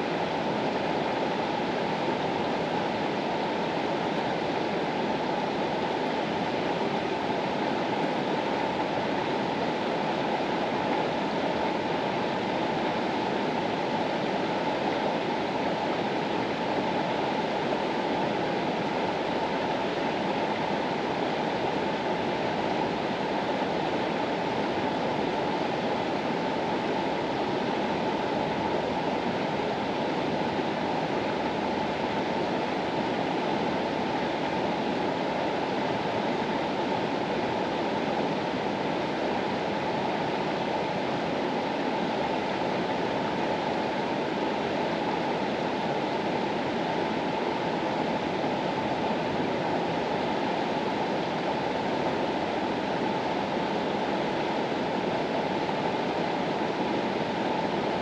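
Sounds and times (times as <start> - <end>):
mountain river rushing: 0.0 - 58.0.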